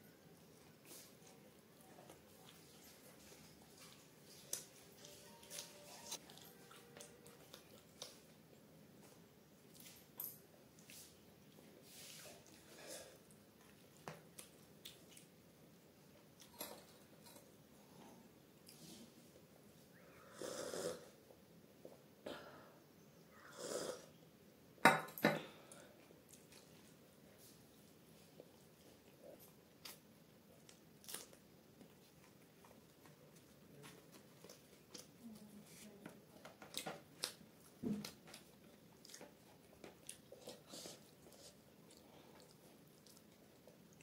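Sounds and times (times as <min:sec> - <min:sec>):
chewing and mouth smacks: 0:02.1 - 0:08.4, 0:13.6 - 0:15.3, 0:28.4 - 0:35.5, 0:36.4 - 0:44.0.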